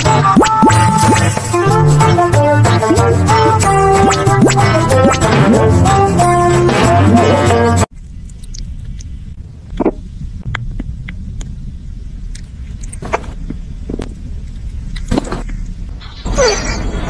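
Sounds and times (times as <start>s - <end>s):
background music: 0.0s - 7.9s.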